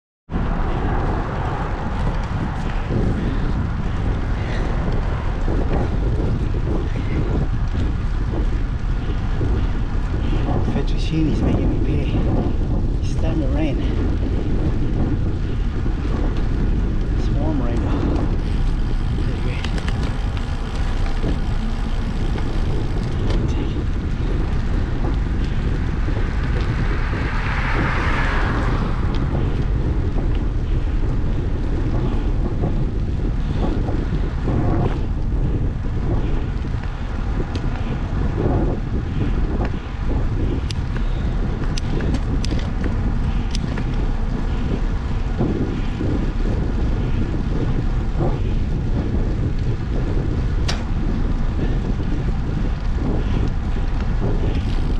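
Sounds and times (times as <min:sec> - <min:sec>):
wind buffeting microphone: 0:00.3 - 0:54.9.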